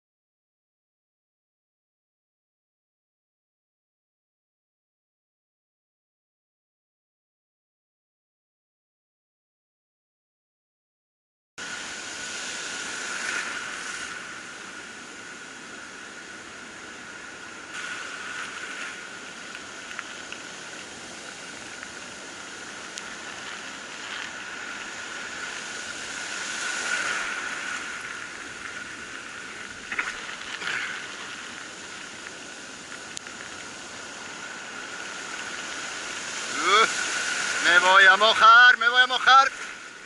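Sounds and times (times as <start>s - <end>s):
waves breaking on a beach: 11.6s - 40.0s.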